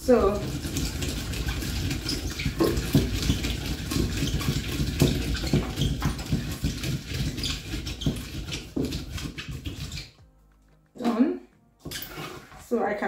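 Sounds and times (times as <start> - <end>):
pestle rubbing beans: 0.0 - 10.3
wooden pestle knocking in mortar: 0.1 - 10.1.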